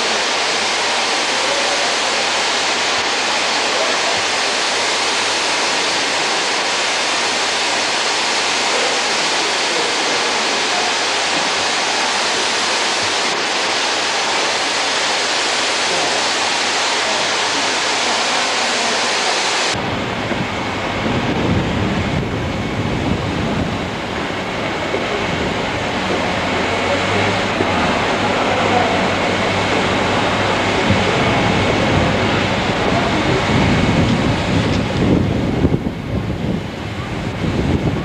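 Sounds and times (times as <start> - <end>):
loud steady hiss: 0.0 - 38.0
wind buffeting microphone: 19.7 - 38.0.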